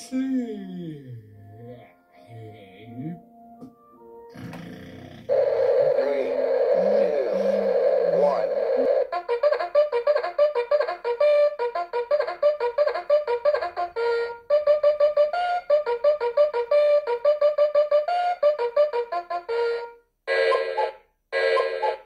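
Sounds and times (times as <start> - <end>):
alarm clock trumpet-like melody: 5.3 - 22.0.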